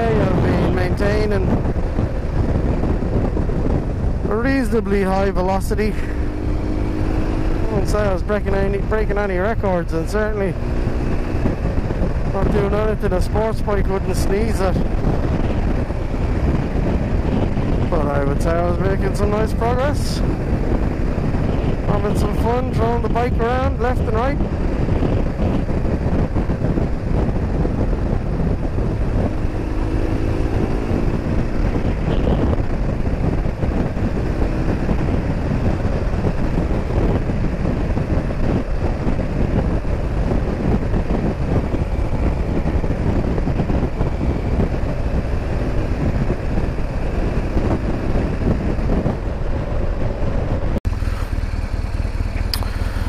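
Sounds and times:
motorcycle engine: 0.0s - 53.0s
wind rushing on microphone: 0.0s - 53.0s.

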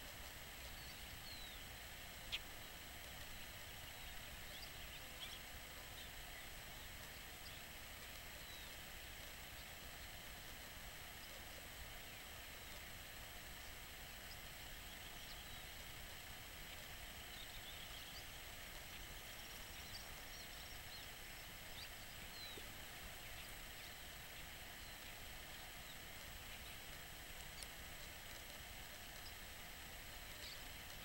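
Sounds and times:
steady hiss: 0.0s - 31.0s
small birds chirping and whistling: 0.6s - 7.7s, 8.3s - 8.8s, 14.2s - 15.8s, 16.6s - 27.8s, 30.2s - 31.0s.

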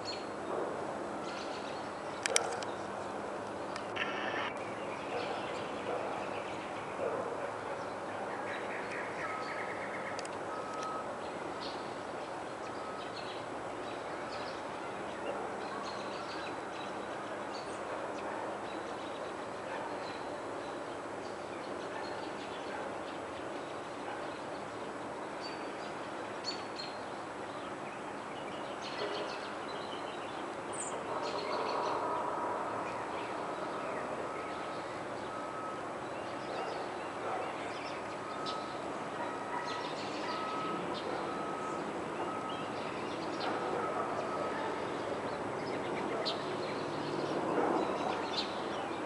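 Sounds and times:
steady background rush: 3.8s - 4.6s
short bird chirps: 4.0s - 4.5s.

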